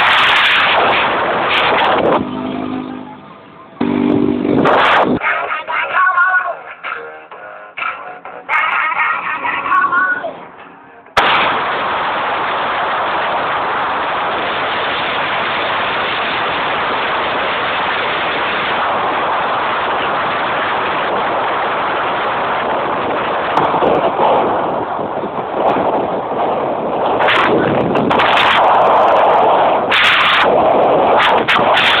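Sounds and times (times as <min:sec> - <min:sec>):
wind buffeting microphone: 0:00.0 - 0:05.2, 0:11.2 - 0:32.0
road noise from moving vehicle: 0:00.0 - 0:05.8, 0:06.6 - 0:11.2, 0:13.9 - 0:32.0
music: 0:05.2 - 0:11.1.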